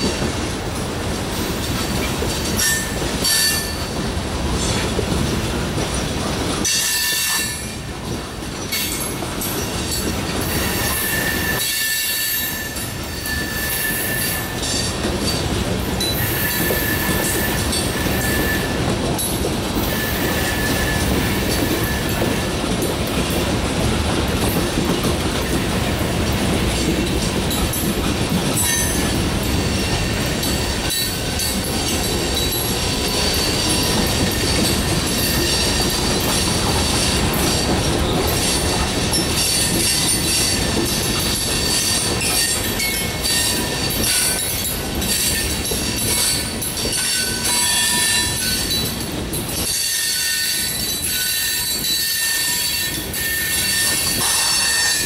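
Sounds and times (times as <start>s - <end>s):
freight train wheels rumbling on rail: 0.0s - 55.0s
high-pitched wheel squeal: 10.5s - 14.6s, 16.2s - 18.8s, 19.9s - 22.2s, 49.8s - 55.0s.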